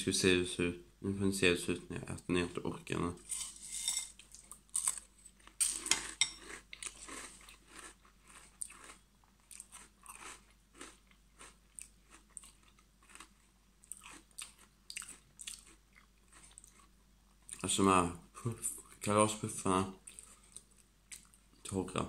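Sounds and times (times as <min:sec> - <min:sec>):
chewing crunchy cereal: 0:03.3 - 0:17.6, 0:20.0 - 0:21.6.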